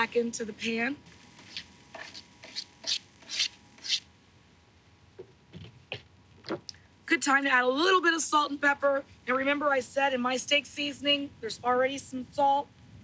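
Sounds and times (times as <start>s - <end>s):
scraping on plastic cutting board: 1.4s - 4.0s.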